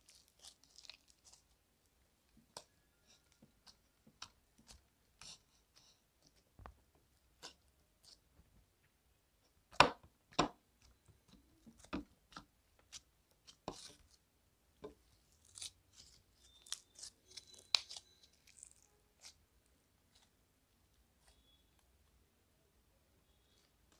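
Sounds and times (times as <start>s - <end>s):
foam slime crackling and squishing: 0.0s - 1.6s, 15.0s - 19.4s.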